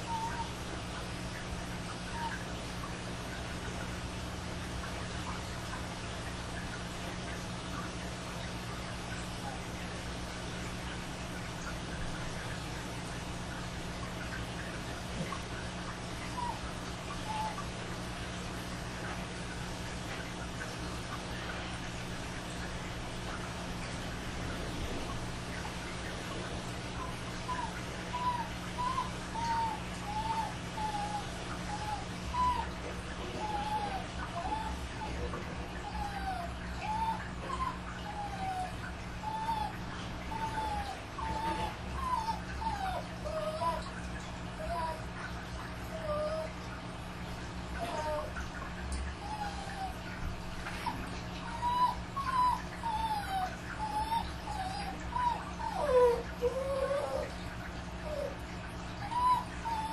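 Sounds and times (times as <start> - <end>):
dog whining: 0.0 - 1.0, 1.9 - 3.0, 15.2 - 17.8, 26.7 - 59.9
low steady hum: 0.0 - 59.9.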